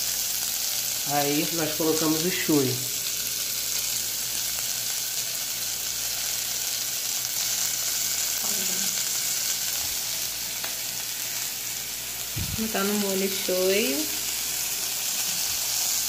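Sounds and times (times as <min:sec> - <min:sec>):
onions sizzling in oil: 0:00.0 - 0:16.0.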